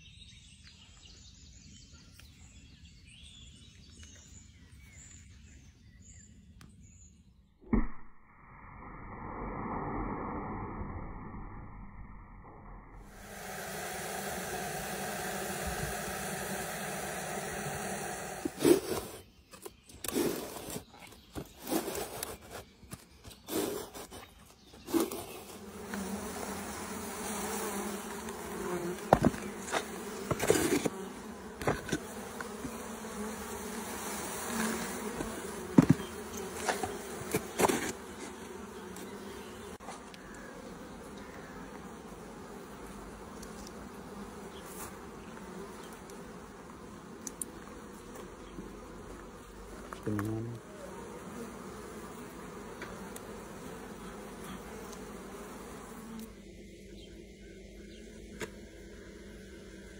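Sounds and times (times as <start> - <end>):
honeybees buzzing: 13.0 - 59.9.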